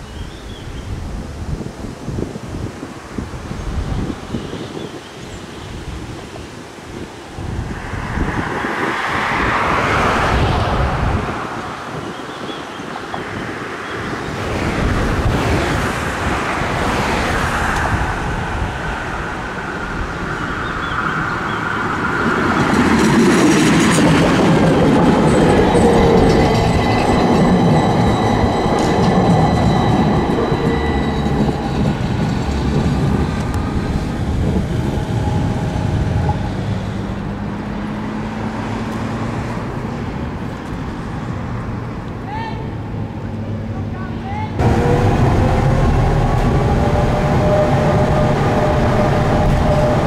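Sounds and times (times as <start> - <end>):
tram drive whine: 6.8 - 43.9, 44.6 - 50.0
tram wheels running on rails: 14.4 - 38.0, 44.6 - 50.0.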